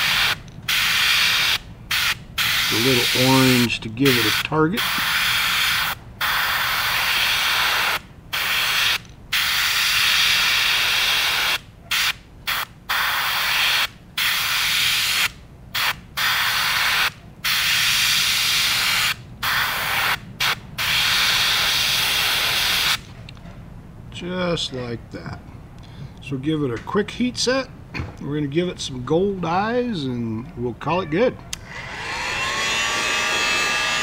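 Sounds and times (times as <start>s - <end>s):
airbrush spraying hissing bursts: 0.0s - 23.0s.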